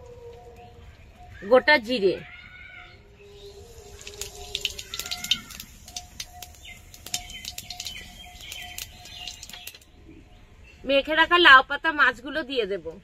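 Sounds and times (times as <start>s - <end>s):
seeds popping in hot oil: 3.4s - 9.9s.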